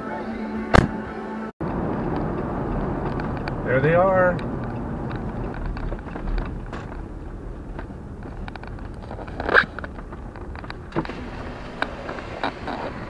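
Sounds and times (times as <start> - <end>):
car road and engine rumble: 0.7 - 13.0
light clicks and rattles: 2.0 - 11.2.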